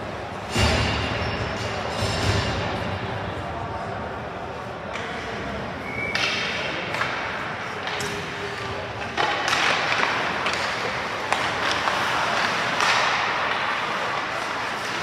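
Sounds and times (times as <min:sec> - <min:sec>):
hockey sticks and puck clicking: 0:06.0 - 0:15.0
skate blades scraping ice: 0:09.4 - 0:15.0.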